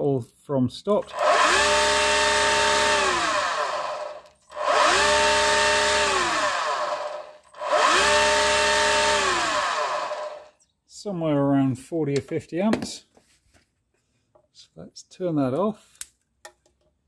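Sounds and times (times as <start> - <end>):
electric motor whine: 1.1 - 10.5.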